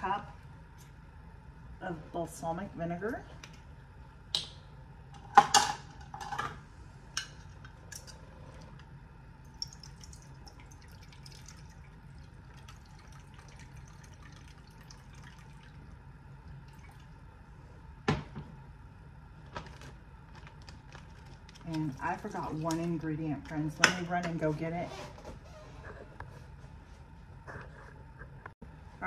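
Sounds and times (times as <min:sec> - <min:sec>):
liquid trickling into cup: 0:09.5 - 0:16.0, 0:16.6 - 0:17.1.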